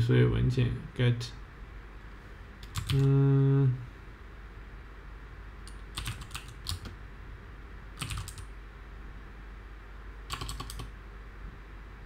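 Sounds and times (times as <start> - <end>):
computer keyboard typing: 2.6 - 3.1, 5.7 - 7.0, 8.0 - 8.5, 10.3 - 10.9.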